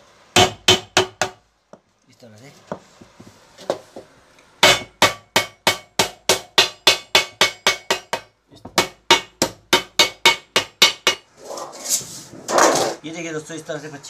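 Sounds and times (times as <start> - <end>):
wooden mallet beating metal sheet: 0.4 - 1.4, 4.6 - 11.3.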